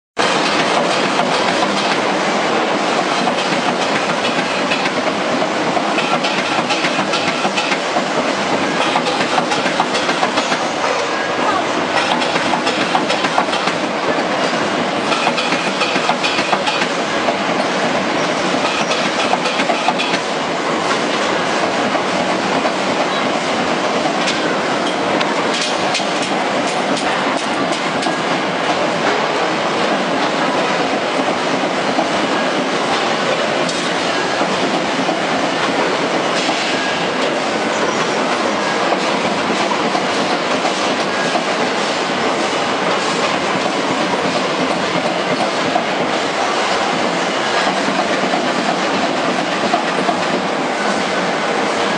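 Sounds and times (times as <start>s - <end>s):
spot welding machines clicking: 6.0s - 7.8s.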